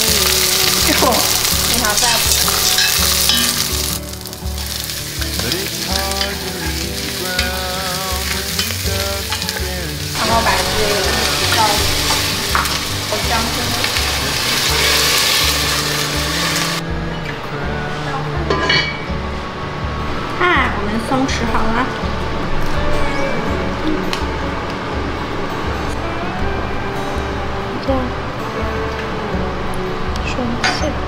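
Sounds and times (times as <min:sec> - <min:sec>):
food sizzling in hot oil: 0:00.0 - 0:16.8.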